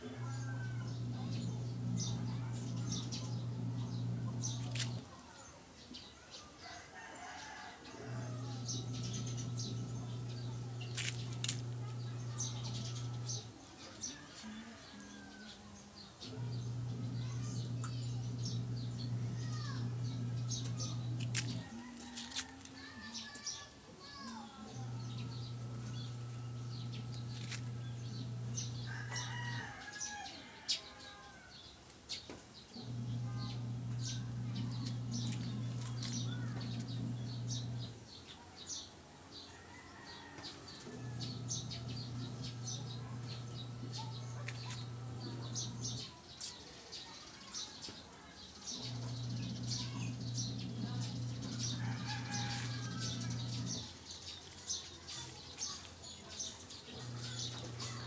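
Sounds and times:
motor humming: 0.0 - 5.1, 8.1 - 13.6, 16.2 - 23.5, 24.2 - 30.1, 32.8 - 38.0, 40.7 - 46.2, 48.7 - 54.0, 56.9 - 58.0
small birds chirping: 0.0 - 58.0.

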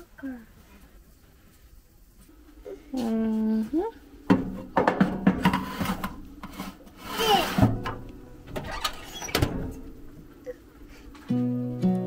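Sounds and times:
metal tray scraping on oven rack: 4.5 - 10.2
short hissy squeak: 8.6 - 9.5.

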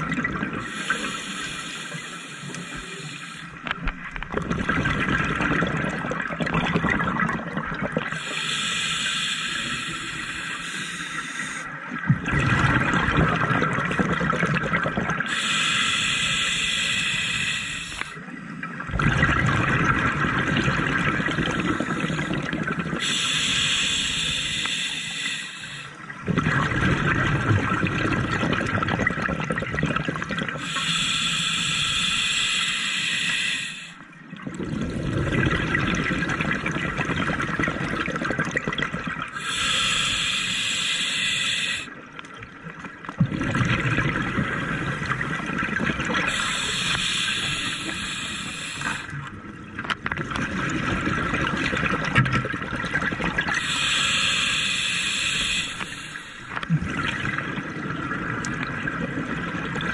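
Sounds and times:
hissing inhale through regulator: 0.6 - 3.7, 8.1 - 11.8, 15.2 - 18.3, 21.5 - 26.2, 30.6 - 34.1, 39.3 - 42.0, 46.2 - 49.3, 53.5 - 56.6
bubbling exhale: 18.9 - 42.0, 43.2 - 49.3, 50.4 - 59.9.

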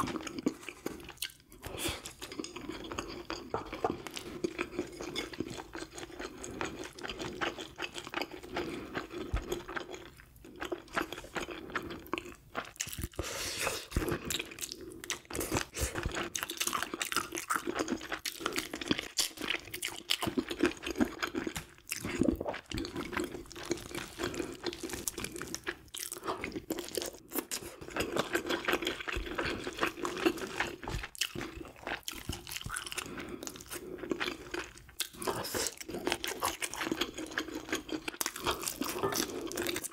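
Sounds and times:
chewing and crunching: 0.0 - 39.9.

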